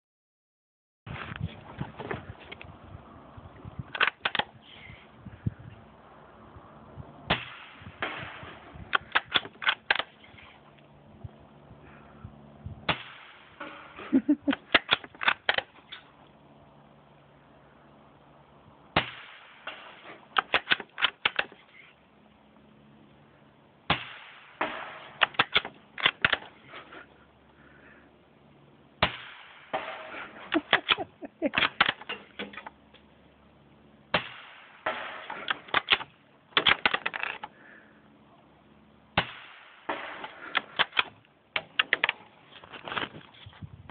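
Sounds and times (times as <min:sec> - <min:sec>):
rifle bolt clicking: 0:09.0 - 0:10.1, 0:20.4 - 0:21.6, 0:25.2 - 0:26.5, 0:35.5 - 0:37.5
rifle shots: 0:19.0 - 0:21.6, 0:23.9 - 0:26.6, 0:29.0 - 0:32.6, 0:34.1 - 0:37.4, 0:39.2 - 0:42.2.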